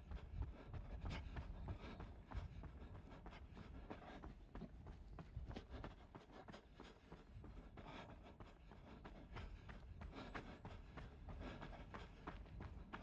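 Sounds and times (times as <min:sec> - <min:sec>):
faint running footsteps: 0:00.0 - 0:13.0.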